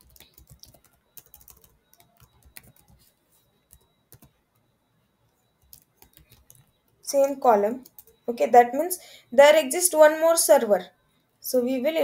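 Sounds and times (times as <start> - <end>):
typing on computer keyboard: 0.0 - 4.4, 5.6 - 7.0, 7.8 - 8.2.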